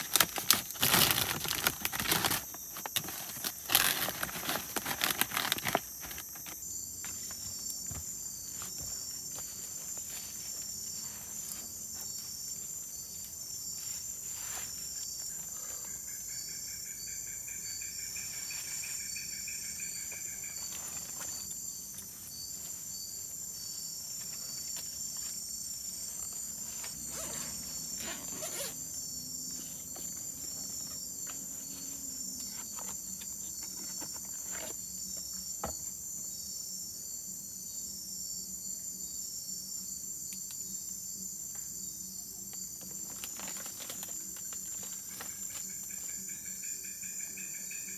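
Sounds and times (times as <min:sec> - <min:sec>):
insect trilling: 0:00.0 - 0:09.2, 0:11.9 - 0:34.8
insect chorus: 0:00.0 - 0:47.9.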